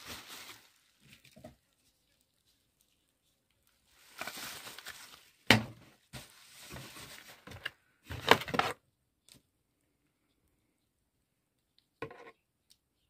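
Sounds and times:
bubble wrap crinkling: 0.0s - 7.8s.

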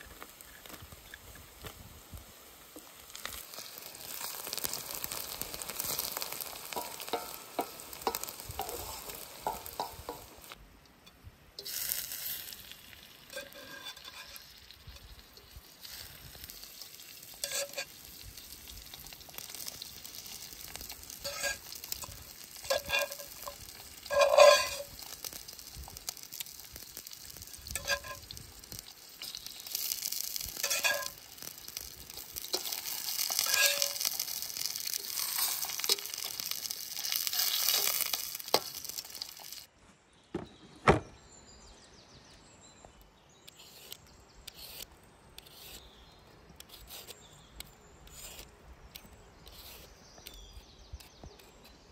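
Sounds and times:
vegetables sizzling in a wok: 0.0s - 10.6s, 11.6s - 39.7s
wooden spatula scraping: 3.2s - 10.6s, 13.3s - 18.0s, 19.2s - 26.0s, 27.6s - 39.7s, 48.0s - 48.5s.

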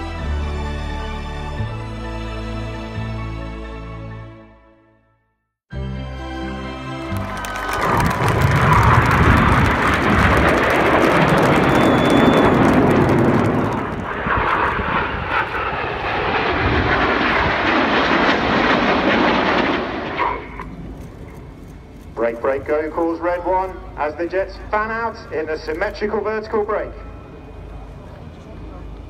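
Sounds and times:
jet engines roaring past: 7.1s - 29.0s.

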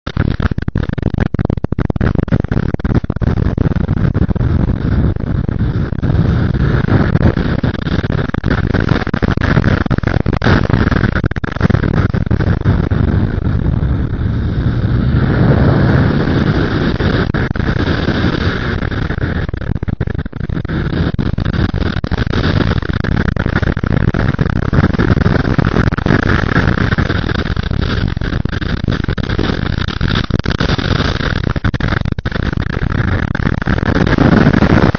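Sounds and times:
wind buffeting microphone: 11.7s - 22.5s
motorcycle engine at speed: 12.2s - 22.4s.

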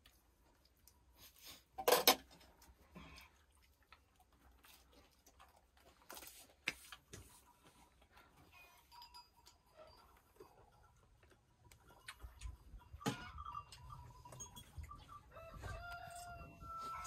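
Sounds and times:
dishes clinking: 12.9s - 14.9s.

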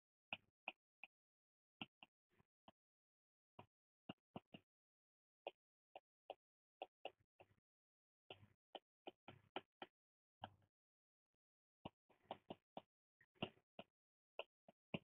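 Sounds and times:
stylus tapping on tablet: 3.6s - 4.8s, 8.3s - 10.6s, 11.8s - 15.0s.

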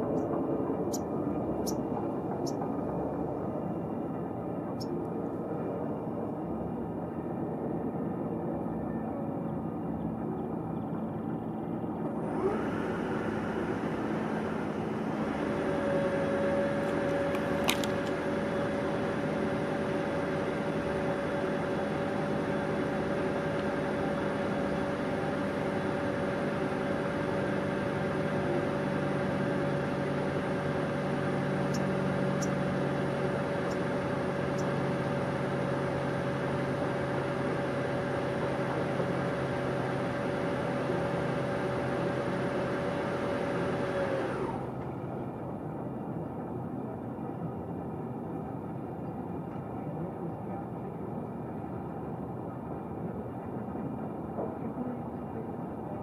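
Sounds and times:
distant engine rumble: 0.0s - 40.2s
steady whine: 0.0s - 56.0s.

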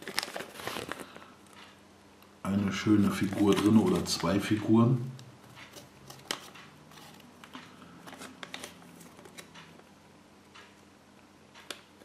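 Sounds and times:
paper rustling: 0.0s - 1.3s, 2.8s - 4.7s.

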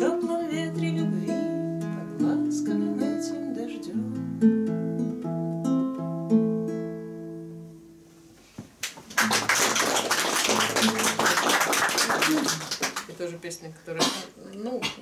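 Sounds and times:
classical guitar playing: 0.0s - 8.3s, 9.3s - 11.4s
audience applause: 8.8s - 13.2s.

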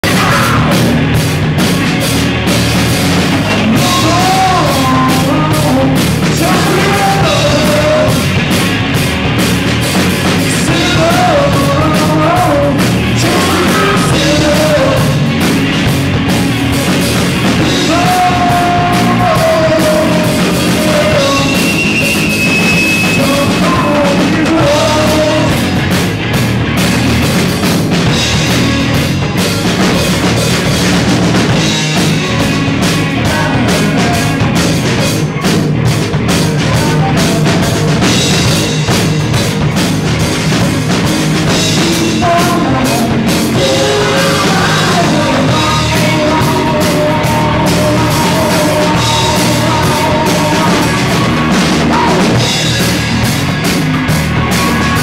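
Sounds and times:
man singing: 0.0s - 0.9s, 3.3s - 8.4s, 10.4s - 15.4s, 17.6s - 25.8s, 31.6s - 35.1s, 36.4s - 38.6s, 41.5s - 52.7s
drums and cymbals: 0.0s - 55.0s
rock band playing live: 0.0s - 55.0s.

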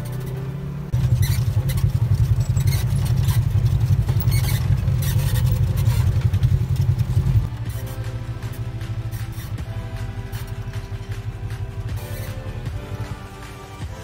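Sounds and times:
engine running with deep drone: 0.0s - 14.0s
music: 5.1s - 14.0s.

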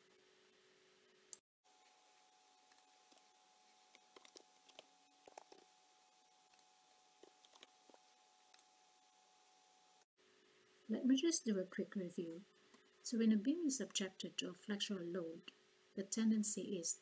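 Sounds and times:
faint steady hum: 0.0s - 17.0s
computer keyboard clicks: 4.2s - 5.6s, 7.2s - 8.0s.

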